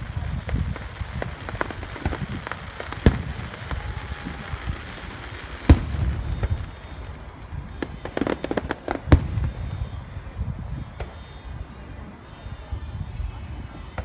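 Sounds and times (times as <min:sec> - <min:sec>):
fireworks booming: 0:00.0 - 0:14.0
fireworks popping: 0:00.0 - 0:14.0.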